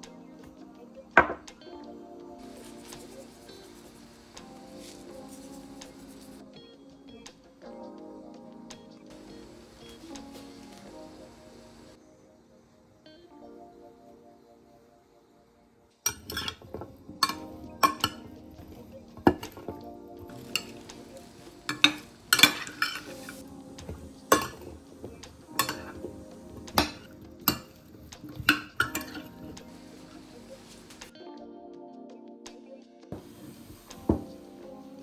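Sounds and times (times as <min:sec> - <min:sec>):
background music: 0:00.0 - 0:35.0
metal spoon clinking on glass: 0:16.1 - 0:18.3, 0:20.4 - 0:20.8, 0:21.7 - 0:24.8, 0:25.6 - 0:26.0, 0:26.7 - 0:29.3
spoon scraping glass dish: 0:16.1 - 0:18.3, 0:21.7 - 0:24.8, 0:25.6 - 0:26.0.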